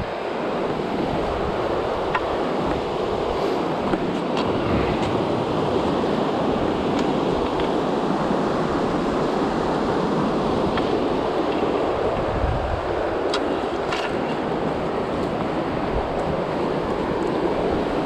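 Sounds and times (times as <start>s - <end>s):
white-water rapids rushing: 0.0s - 18.0s.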